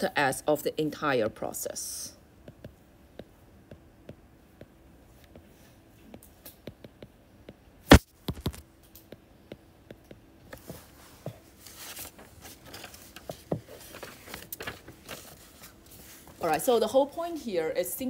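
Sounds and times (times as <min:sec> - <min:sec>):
stylus tapping on screen: 0:02.4 - 0:05.5, 0:06.1 - 0:10.7.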